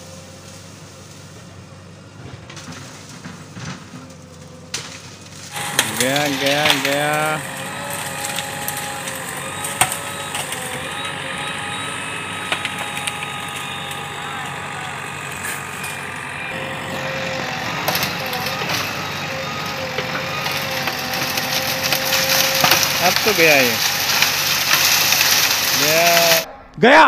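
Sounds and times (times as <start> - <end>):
backhoe engine whining: 0.0 - 26.8
bamboo stalks cracking: 2.3 - 26.5.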